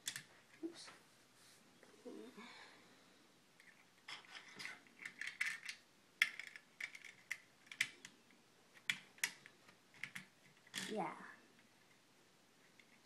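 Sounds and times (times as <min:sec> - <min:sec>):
plastic toy bricks clicking: 0:00.0 - 0:00.3, 0:03.6 - 0:08.1, 0:08.8 - 0:10.9.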